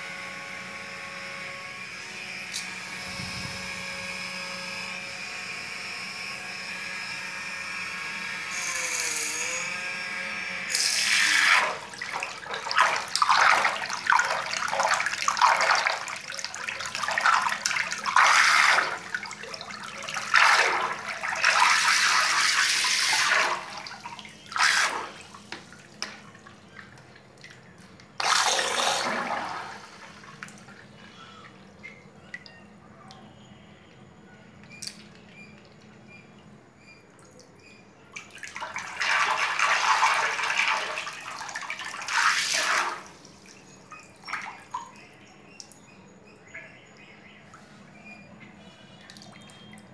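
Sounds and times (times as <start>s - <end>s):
small electric motor whining: 0.0s - 11.8s
water splashing and churning: 11.0s - 30.9s, 38.2s - 45.0s
water dripping: 11.8s - 22.6s, 30.2s - 33.2s, 43.2s - 46.0s, 48.9s - 49.9s.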